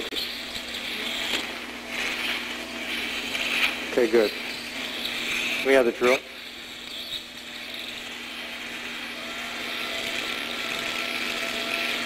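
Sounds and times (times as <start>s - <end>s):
suction hiss: 0.0s - 12.0s
surgical bone drill running: 0.0s - 12.0s
thin steady whine: 0.0s - 12.0s.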